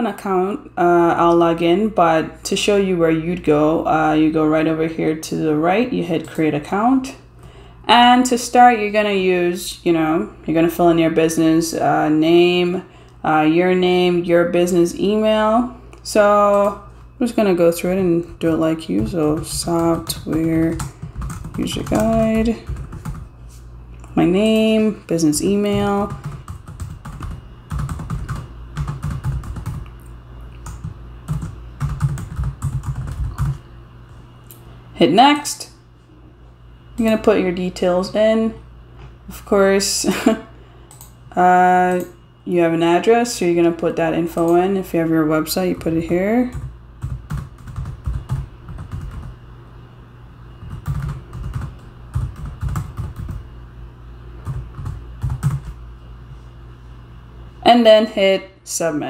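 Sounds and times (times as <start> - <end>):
steady low hum: 0.0 - 59.0
keyboard typing: 18.1 - 23.3, 25.6 - 29.9, 30.6 - 33.6, 45.8 - 49.3, 50.6 - 53.4, 54.4 - 55.8.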